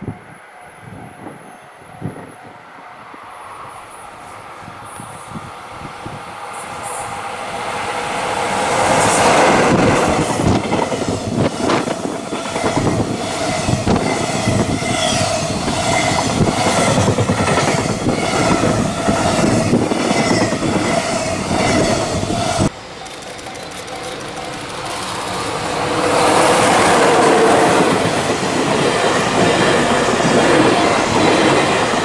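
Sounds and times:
freight train passing: 0.0s - 32.0s
high ringing tone from wheels: 18.0s - 25.5s.

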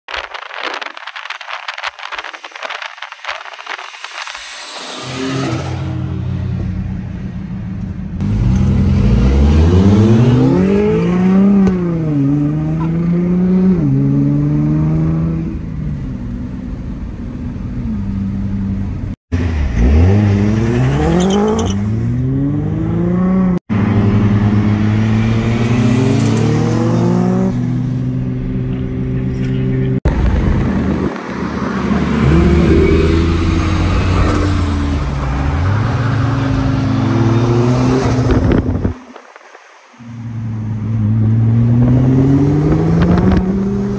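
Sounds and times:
car engine revving hard: 8.2s - 15.4s, 41.0s - 43.9s.

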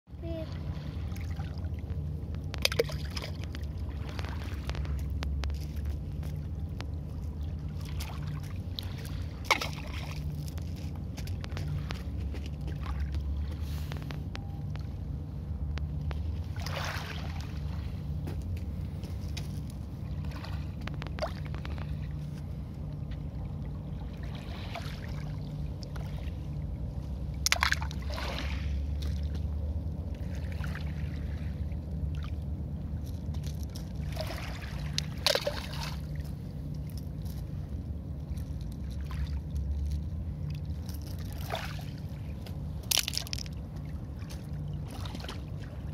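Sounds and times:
steady low rumble: 0.1s - 45.9s
water splashes: 0.2s - 14.0s, 15.8s - 37.2s, 38.2s - 45.9s
waves lapping on pebble shore: 42.8s - 43.6s.

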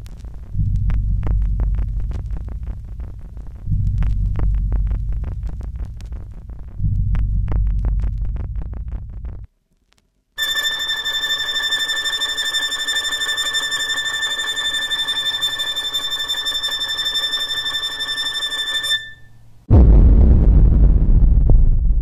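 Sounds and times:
loud deep rumble: 0.0s - 9.5s, 19.7s - 22.0s
bell ringing rapidly: 10.4s - 19.4s.

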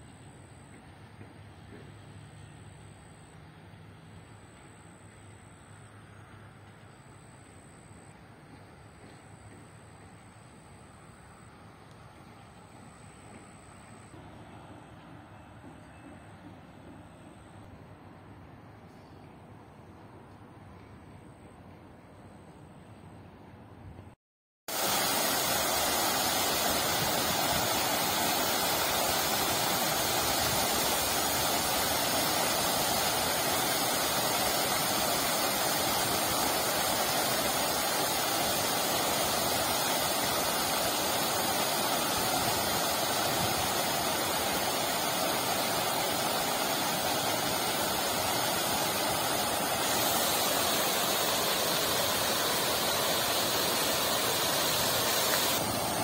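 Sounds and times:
fountain water splashing: 24.7s - 56.0s.

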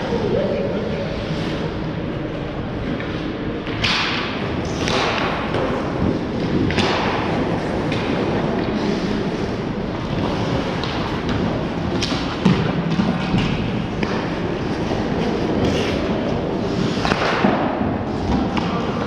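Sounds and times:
hockey sticks and puck clacking: 2.8s - 19.0s
skates scraping on ice: 4.8s - 17.5s.

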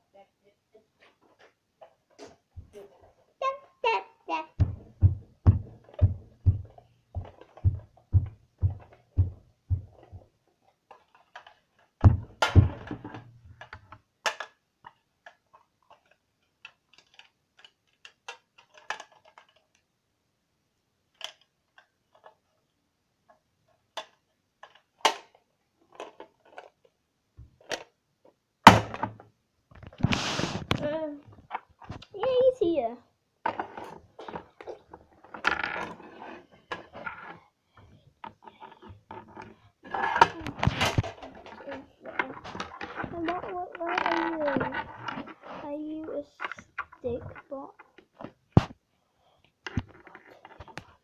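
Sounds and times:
dull knocks: 4.6s - 10.1s
heavy thump: 4.6s - 10.2s, 12.0s - 13.2s.

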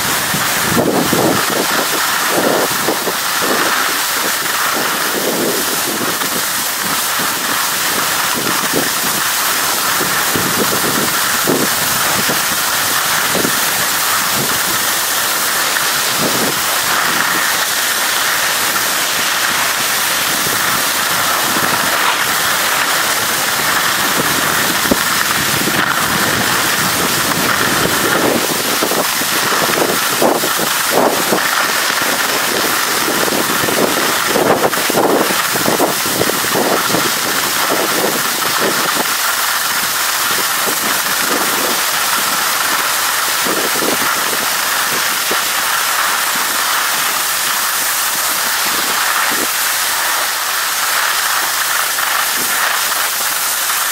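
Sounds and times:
wind buffeting microphone: 0.0s - 39.3s
skis scraping over snow: 0.0s - 53.9s.

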